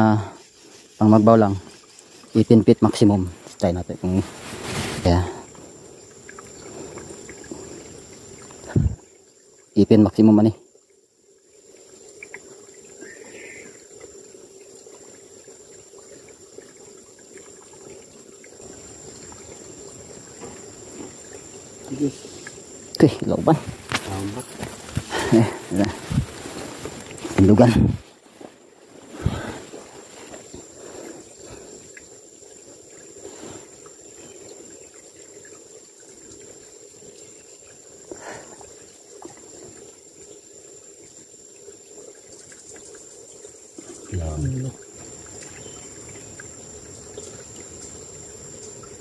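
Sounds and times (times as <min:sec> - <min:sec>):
stream trickling over rocks: 0:00.0 - 0:49.0.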